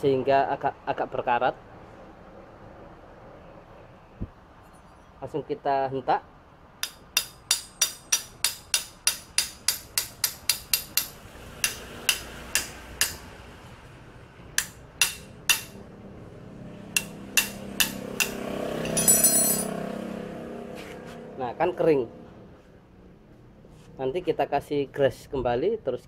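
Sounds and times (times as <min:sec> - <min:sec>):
metal-on-metal strikes: 0:06.8 - 0:13.3, 0:14.6 - 0:15.8, 0:16.9 - 0:19.8.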